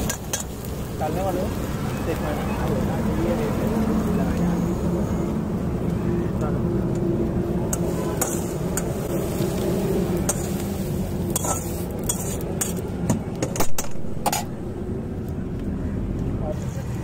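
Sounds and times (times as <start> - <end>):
metal utensil clinking on pan: 11.4 - 12.8.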